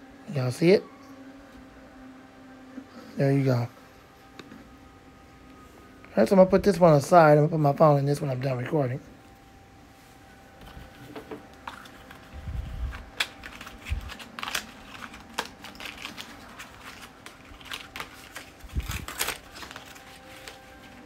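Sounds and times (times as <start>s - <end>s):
packaging crinkling: 10.8s - 21.0s.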